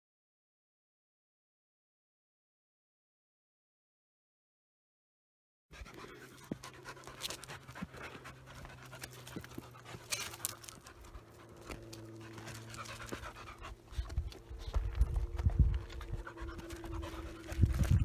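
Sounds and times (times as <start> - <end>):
dog panting: 5.8 - 18.0
small clicks and scuffs: 6.0 - 18.0.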